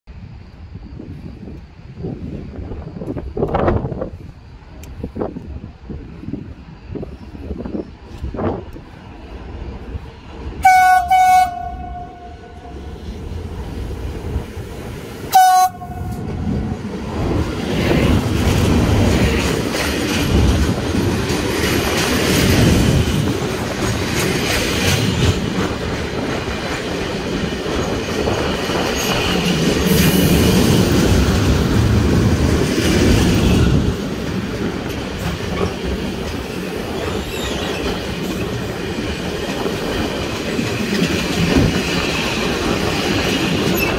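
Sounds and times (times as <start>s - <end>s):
train wheels on rails: 0.1s - 43.9s
train horn: 10.6s - 13.0s, 15.3s - 16.5s.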